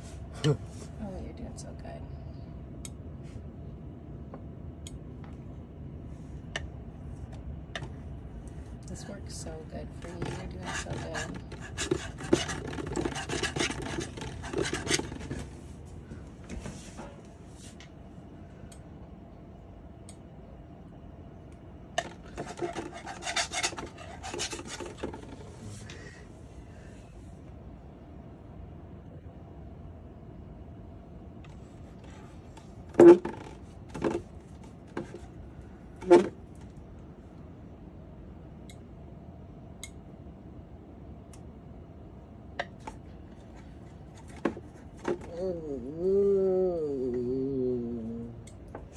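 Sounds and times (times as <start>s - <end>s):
steady low hum: 0.0s - 48.9s
palette knife scraping paint on wood: 10.0s - 15.5s, 22.0s - 25.5s.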